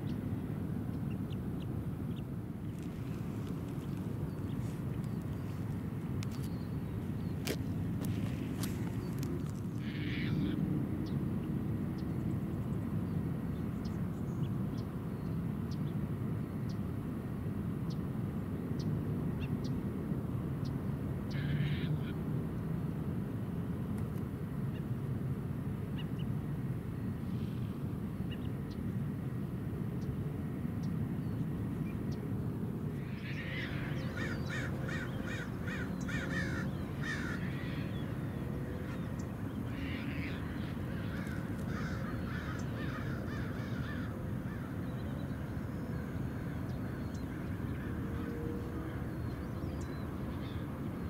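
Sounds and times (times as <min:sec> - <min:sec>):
flock of birds calling: 0:33.0 - 0:49.0.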